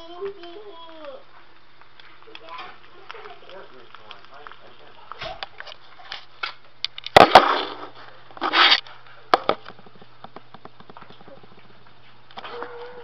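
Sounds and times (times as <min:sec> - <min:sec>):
faint rapid clicking: 0:00.0 - 0:05.7
rustling: 0:00.0 - 0:13.0
steady low hum: 0:00.0 - 0:13.0.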